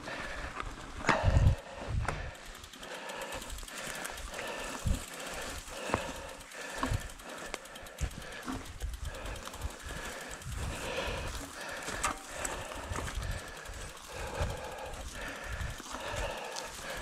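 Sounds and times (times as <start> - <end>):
tyres crunching on trail: 0.0 - 17.0
bike rattling and knocking: 0.1 - 17.0
wind buffeting microphone: 1.0 - 2.4, 4.7 - 5.6, 8.0 - 17.0.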